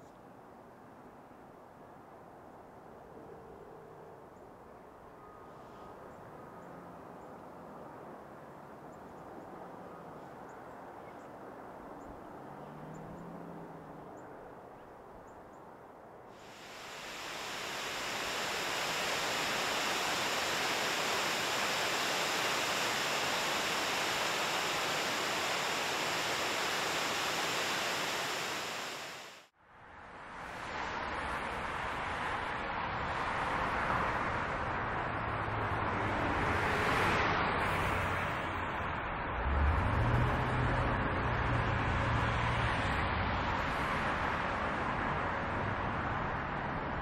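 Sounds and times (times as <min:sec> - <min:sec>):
quiet outdoor ambience: 0:00.0 - 0:47.0
river water rushing: 0:16.4 - 0:29.5.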